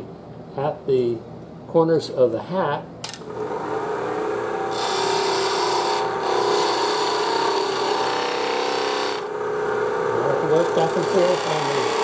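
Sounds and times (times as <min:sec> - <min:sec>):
lathe steady tone: 0:03.4 - 0:12.0
gouge scraping on wood lathe: 0:04.7 - 0:09.3, 0:10.5 - 0:12.0.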